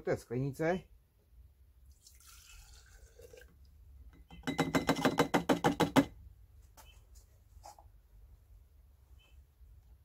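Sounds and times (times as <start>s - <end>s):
liquid trickling into jar: 1.8s - 3.8s
liquid glugging: 1.9s - 3.7s.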